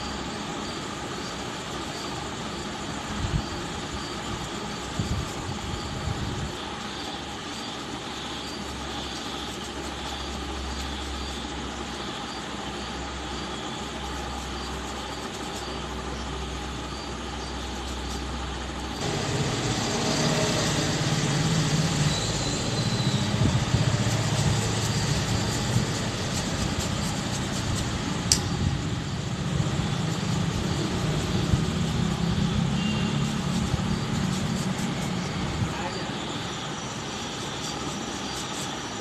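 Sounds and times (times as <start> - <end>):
low mechanical rumble: 0.0 - 36.6
sharp click: 28.3 - 28.6.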